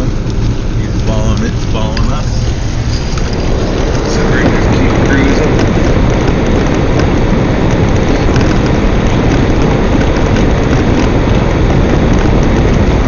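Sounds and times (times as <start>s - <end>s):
vehicle engine and tyre noise: 0.0s - 13.0s.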